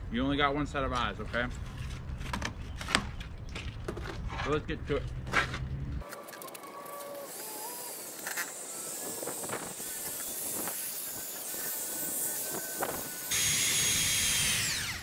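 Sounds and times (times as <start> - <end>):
power drill sanding steel: 7.0 - 15.0.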